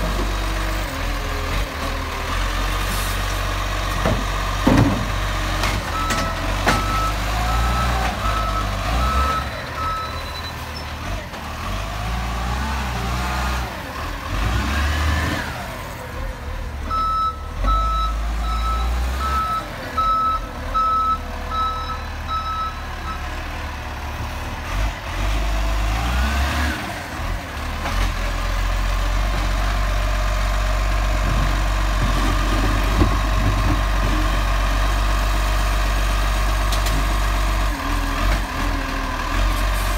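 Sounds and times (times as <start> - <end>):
garbage truck diesel engine: 0.0 - 39.9
reversing beeper: 5.9 - 10.6.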